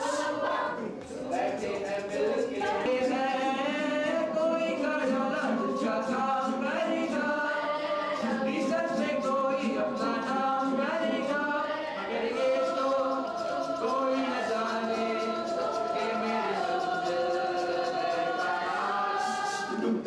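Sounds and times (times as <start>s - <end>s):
young voices singing in chorus: 0.0s - 20.0s.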